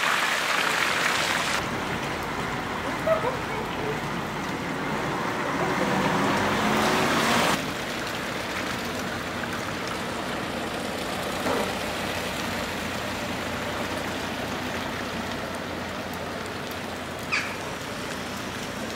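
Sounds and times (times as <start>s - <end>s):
tyre hiss on wet road: 4.9s - 18.9s.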